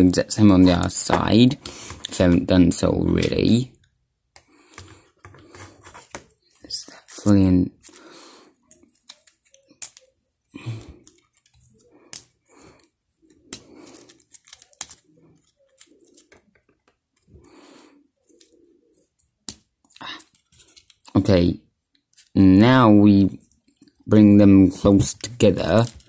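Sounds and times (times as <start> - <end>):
soft handling noise: 4.6 - 10.4, 18.2 - 21.1.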